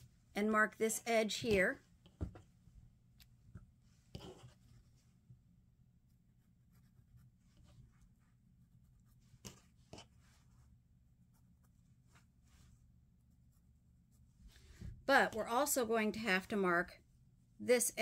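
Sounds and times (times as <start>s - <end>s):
low steady hum: 0.0s - 18.0s
marker pen brushing on fabric: 3.9s - 5.2s, 6.1s - 15.0s.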